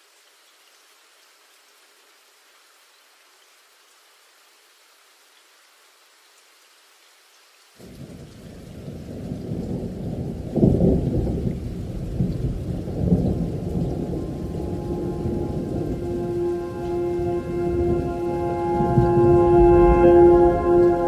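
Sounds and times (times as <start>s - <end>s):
thunder and rain rumble: 7.8s - 21.0s
held synth tones: 13.9s - 21.0s.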